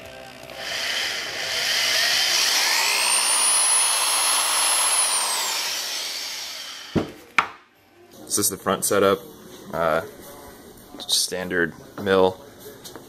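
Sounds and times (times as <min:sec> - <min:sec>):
electric drill boring into plastic: 0:00.0 - 0:07.3.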